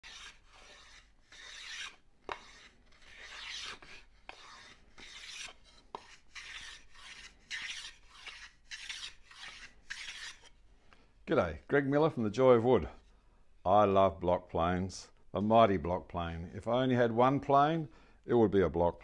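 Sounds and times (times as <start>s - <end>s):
hand plane hissing on wood: 0.0s - 10.5s.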